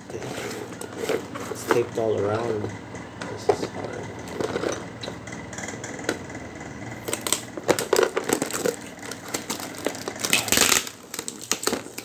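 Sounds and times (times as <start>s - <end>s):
plastic packaging crinkling: 7.0s - 12.0s.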